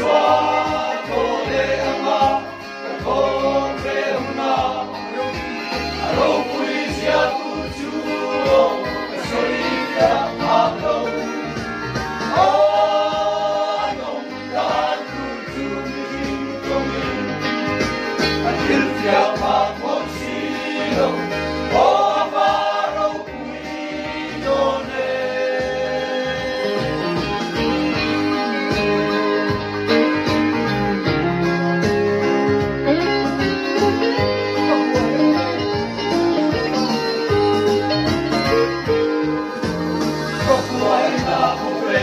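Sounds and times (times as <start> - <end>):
men's choir singing a hymn: 0.0 - 17.4, 18.4 - 26.8, 40.3 - 42.0.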